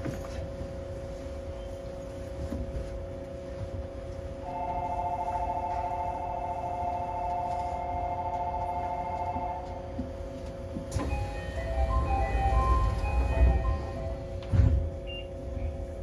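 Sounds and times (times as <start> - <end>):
equipment hum: 0.0 - 16.0
electronic two-tone signal: 11.0 - 14.2.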